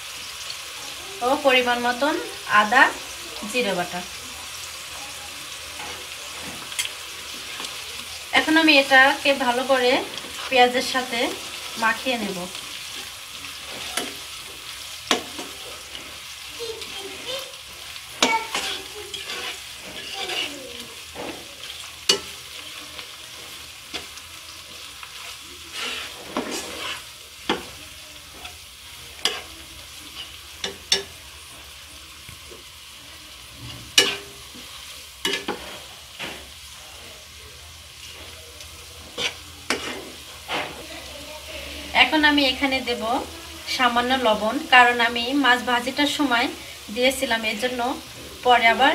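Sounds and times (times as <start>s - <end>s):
food sizzling in hot oil: 0.0s - 48.9s
metal spatula scraping pan: 5.8s - 31.6s, 33.6s - 36.5s, 39.0s - 42.2s.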